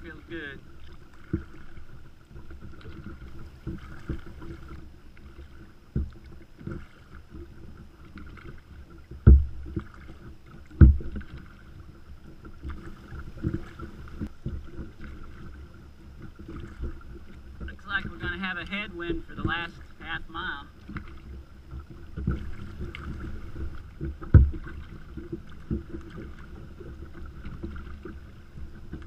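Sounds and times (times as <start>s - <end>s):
paddle strokes: 0.0s - 29.0s
water splashing against kayak hull: 0.0s - 29.0s
low thumps: 9.2s - 9.8s, 10.8s - 11.2s, 22.2s - 25.0s.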